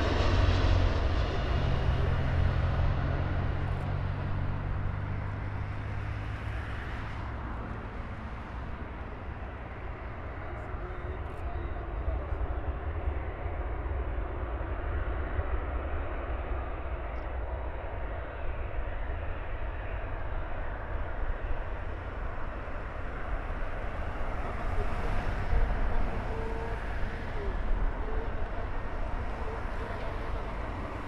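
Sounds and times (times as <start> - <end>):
distant jet engines rumbling: 0.0 - 31.0.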